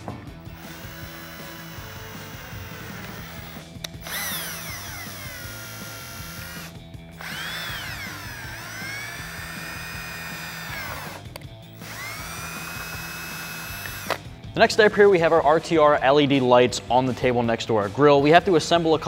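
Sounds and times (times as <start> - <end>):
cordless drill motor whine: 0.4 - 14.2.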